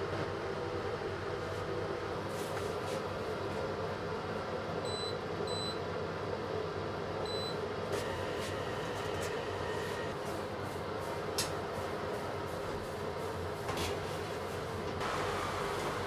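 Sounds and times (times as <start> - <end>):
steady machine hum: 0.0 - 16.0
oven control panel beeps: 4.8 - 5.9, 7.2 - 10.2.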